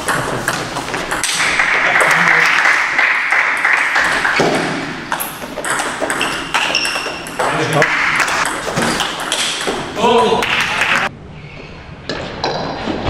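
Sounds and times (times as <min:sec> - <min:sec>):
steady background noise: 0:00.0 - 0:13.0
table tennis ball clicking: 0:05.1 - 0:09.8.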